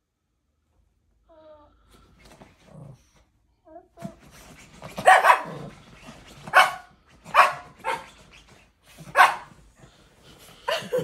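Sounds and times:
small dog barking: 5.0 - 5.7, 6.5 - 8.1, 9.1 - 9.5.

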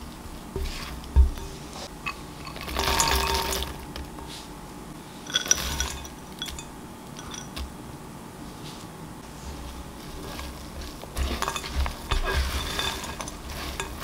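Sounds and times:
glass clinking: 1.4 - 3.8, 5.2 - 7.6, 11.2 - 14.0
nuts sliding into a bowl: 2.1 - 3.8, 5.3 - 6.6, 10.2 - 14.0.

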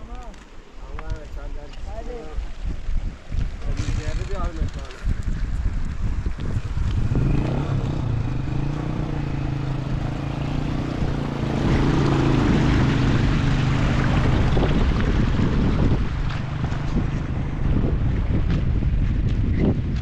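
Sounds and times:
motor engine droning: 6.9 - 18.3.

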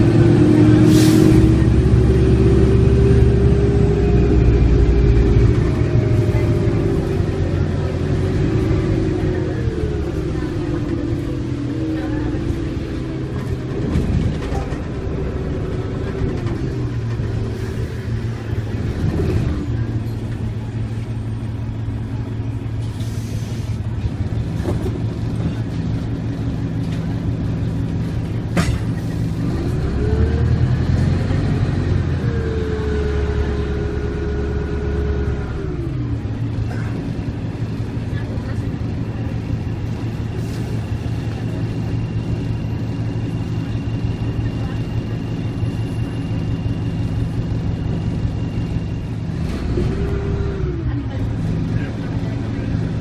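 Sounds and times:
bus diesel engine rumble: 0.0 - 53.0
drivetrain whine: 23.9 - 53.0.

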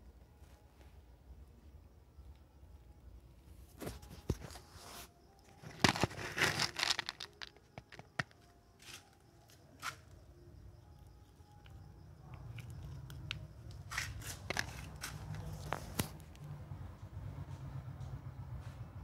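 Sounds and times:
rustling and crinkling: 3.5 - 10.2, 11.2 - 16.3.

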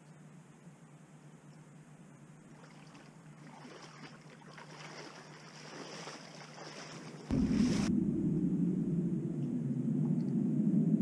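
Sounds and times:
legs wading through shallow water: 2.5 - 7.9
loud low rumble: 7.3 - 11.0.

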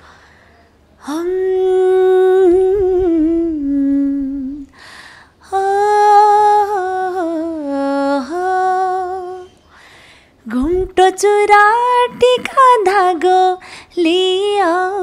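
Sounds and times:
woman breathing: 0.0 - 0.8, 4.7 - 5.4, 9.7 - 10.4, 13.6 - 14.0
woman singing unaccompanied: 1.0 - 4.8, 5.4 - 9.6, 10.4 - 15.0.

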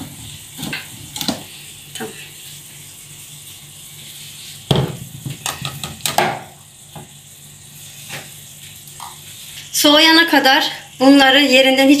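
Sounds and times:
glass jars knocking on countertop: 4.7 - 6.5.

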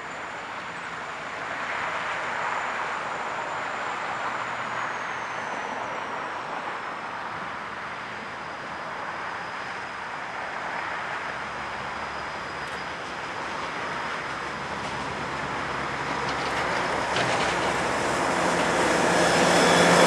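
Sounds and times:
diesel locomotive engine: 0.0 - 20.0
thin high whine: 15.6 - 20.0.

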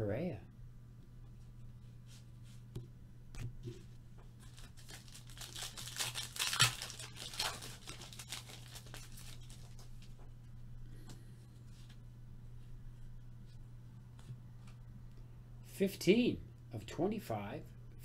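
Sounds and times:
steady low hum: 0.0 - 18.0
wrapper tearing and crinkling: 4.4 - 10.2.

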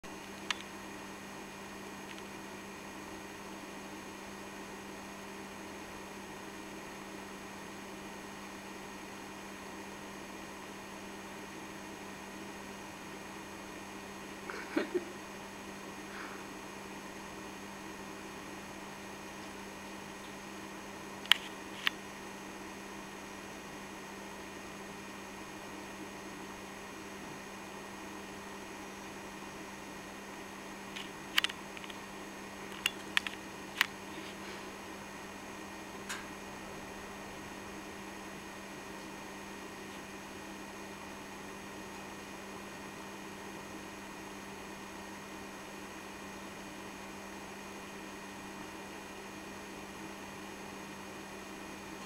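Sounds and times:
steady low hiss and hum: 0.0 - 52.0
sharp clicks and taps: 32.7 - 34.0.

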